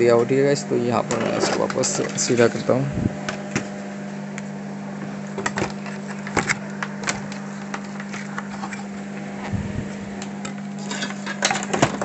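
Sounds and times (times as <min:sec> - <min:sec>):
steady low hum: 0:00.0 - 0:12.0
objects clattering on wooden workbench: 0:10.8 - 0:12.0.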